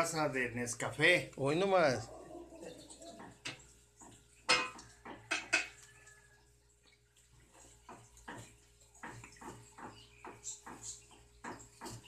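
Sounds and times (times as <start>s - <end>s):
metal utensil clinking on steel pot: 4.5s - 5.8s.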